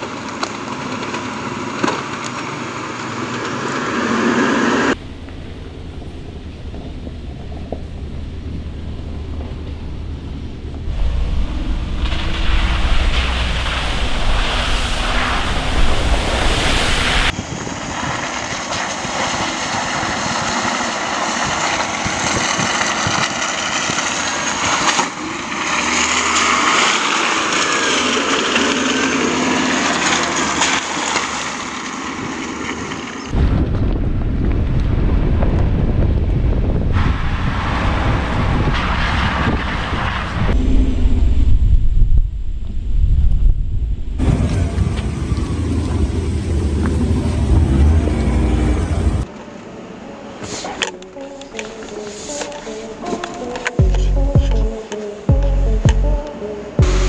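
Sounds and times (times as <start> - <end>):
pickup truck engine off-road: 0.0 - 42.1, 44.2 - 49.4, 53.6 - 57.0
deep rumble: 4.6 - 18.0, 33.3 - 49.3, 53.8 - 57.0
wind on microphone: 4.8 - 24.0, 33.3 - 49.3.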